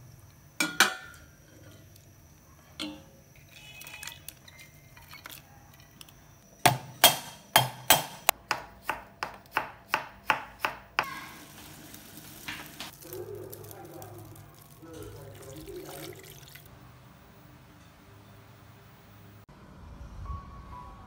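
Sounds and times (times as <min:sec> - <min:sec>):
pot boiling: 0:00.0 - 0:07.4, 0:11.0 - 0:16.7
knife chopping on cutting board: 0:06.7 - 0:11.1.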